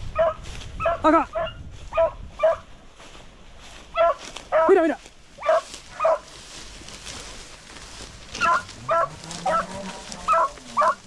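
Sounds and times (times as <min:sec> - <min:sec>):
dog baying: 0:04.0 - 0:04.8, 0:05.4 - 0:06.3, 0:08.4 - 0:11.0.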